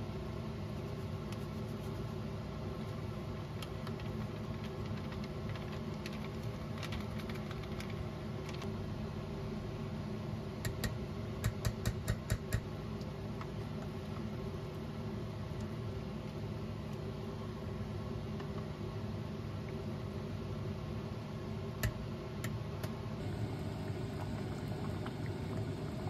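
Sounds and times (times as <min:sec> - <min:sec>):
steady machine hum: 0:07.4 - 0:26.0.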